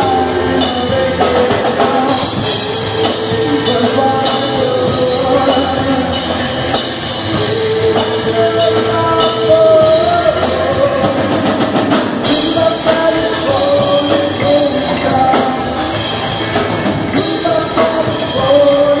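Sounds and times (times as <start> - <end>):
bass guitar: 0.0 - 19.0
drum kit: 0.0 - 19.0
electric guitar: 0.0 - 19.0
man singing: 0.0 - 19.0.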